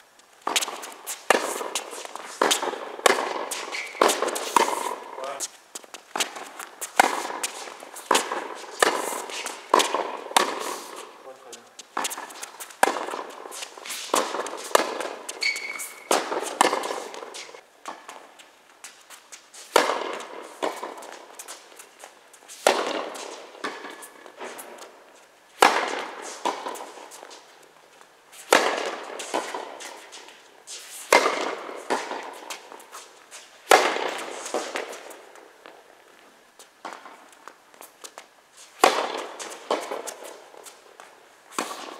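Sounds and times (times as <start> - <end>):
tennis ball bouncing: 0.4 - 19.0, 19.6 - 41.9
rackets striking tennis ball: 0.4 - 41.9.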